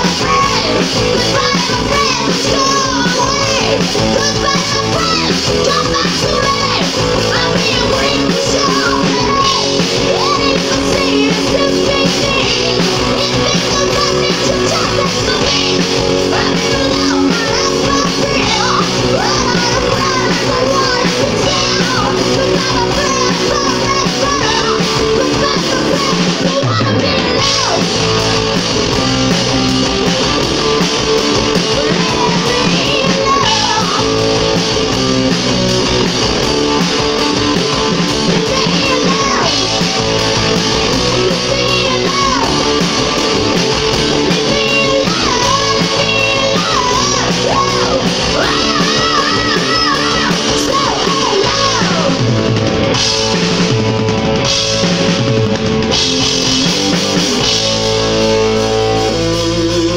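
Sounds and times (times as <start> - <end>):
live rock band playing: 0.0 - 59.9.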